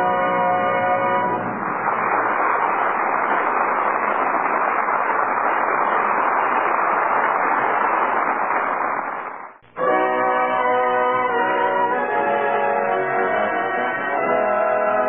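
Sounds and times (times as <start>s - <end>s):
steady rushing noise: 1.2s - 9.6s.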